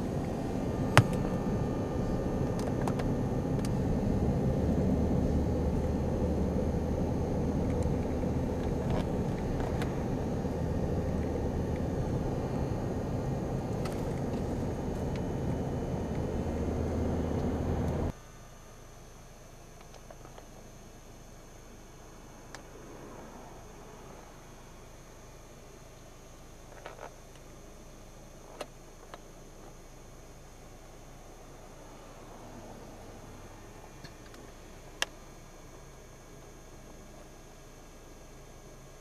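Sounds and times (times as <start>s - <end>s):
vehicle engine and road noise: 0.0s - 18.2s, 31.1s - 35.2s.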